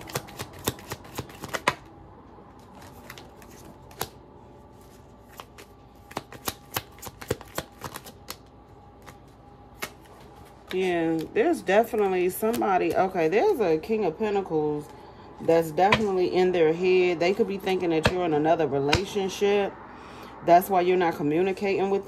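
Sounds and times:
cards being shuffled by hand: 0.0s - 1.9s, 2.5s - 13.2s.

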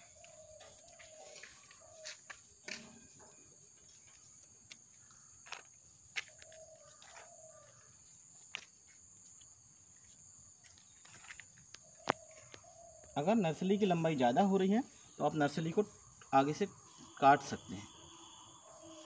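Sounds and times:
faint animal calls: 0.0s - 3.3s, 11.8s - 15.3s, 16.3s - 19.0s.

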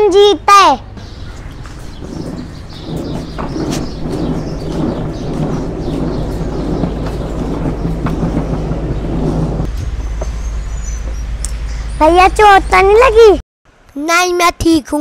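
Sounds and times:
plastic wheels rolling on floor: 1.2s - 9.7s.

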